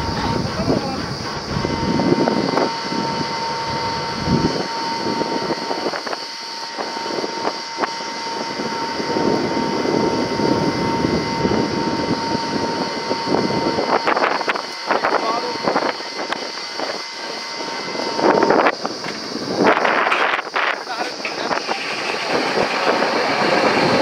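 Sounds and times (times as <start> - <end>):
drilling rig running: 0.0 - 24.0.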